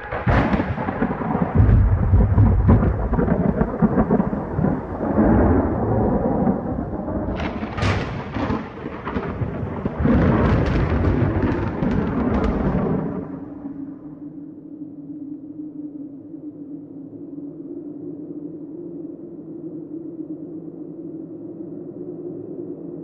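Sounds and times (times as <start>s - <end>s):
sharp thunder cracks: 0.0s - 14.0s
thunder rumbling: 0.0s - 14.2s.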